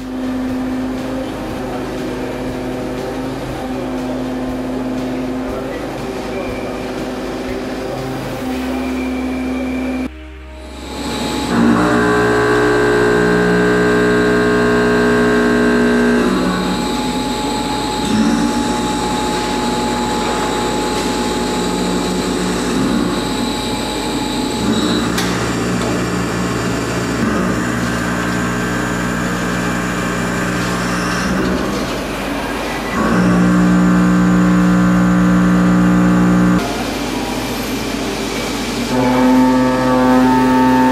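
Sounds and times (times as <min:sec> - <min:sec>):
milling machine cutting steel: 0:10.7 - 0:40.9.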